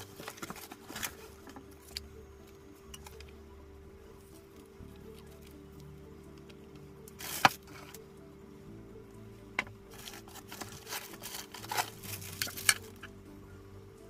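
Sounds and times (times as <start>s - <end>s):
packaging crinkling and clicking: 0.0s - 2.0s, 9.9s - 13.1s
quiet background music: 0.0s - 14.0s.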